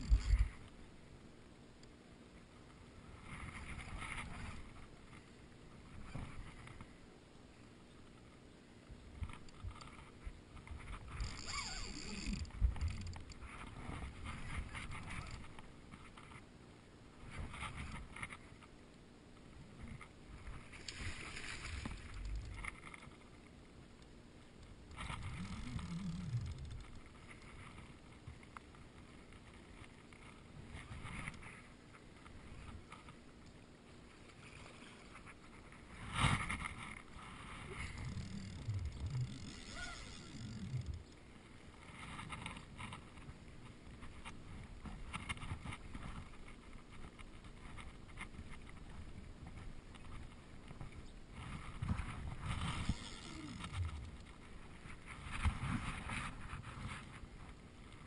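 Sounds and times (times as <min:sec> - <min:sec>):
fishing rod and reel handling: 0:00.0 - 0:00.8, 0:09.2 - 0:16.4, 0:19.3 - 0:23.4, 0:24.0 - 0:33.6, 0:34.2 - 0:41.2, 0:43.9 - 0:57.3
water sloshing and splashing: 0:20.4 - 0:23.3
water lapping: 0:34.0 - 0:42.8.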